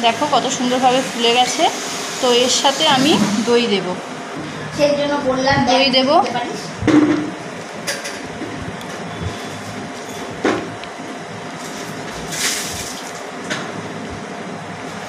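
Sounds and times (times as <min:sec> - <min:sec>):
steady background hum: 0:00.0 - 0:15.0
plastic rustling: 0:11.6 - 0:13.3.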